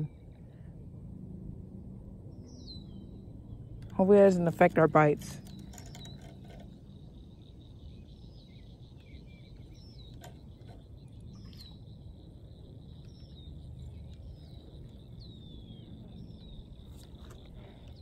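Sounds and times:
low rumble: 0.0s - 18.0s
birds whistling: 2.3s - 3.8s, 5.4s - 18.0s
high insect trill: 2.6s - 18.0s.

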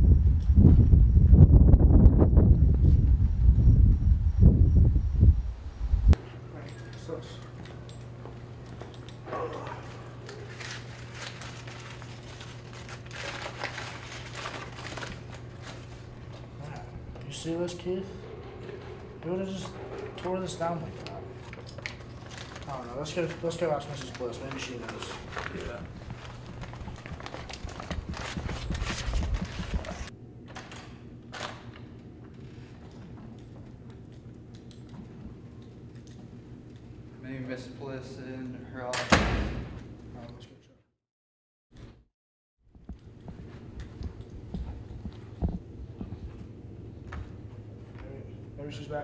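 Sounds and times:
steady low hum: 0.0s - 40.7s, 42.7s - 49.0s
paper crinkling: 9.8s - 16.4s, 20.9s - 30.1s
footsteps on tiled floor: 25.3s - 30.1s, 42.7s - 48.1s.

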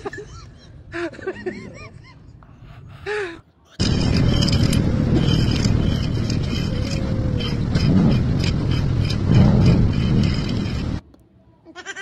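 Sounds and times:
loud outdoor rushing noise: 3.8s - 11.0s.

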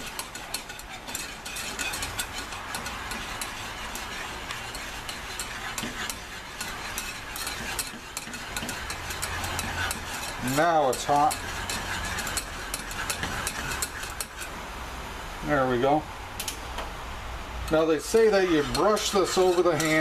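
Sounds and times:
wire whisk clicking in saucepan: 0.0s - 14.5s.

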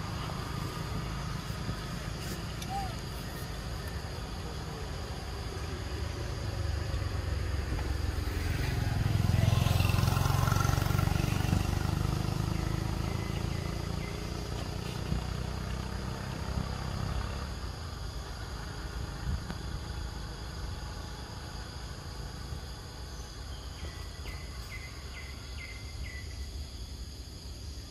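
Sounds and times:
vehicle passing by: 0.0s - 23.5s
insects humming: 0.0s - 27.9s.

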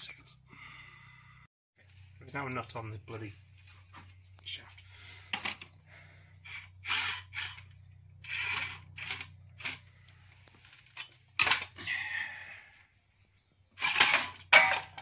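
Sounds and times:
electric motor gears whirring: 6.4s - 11.0s
robot arm clatter: 6.5s - 9.9s.

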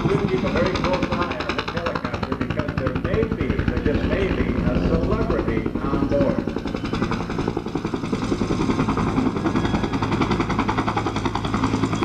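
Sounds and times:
helicopter rotor thumping: 0.0s - 12.0s
turbine engine running: 0.0s - 12.0s.

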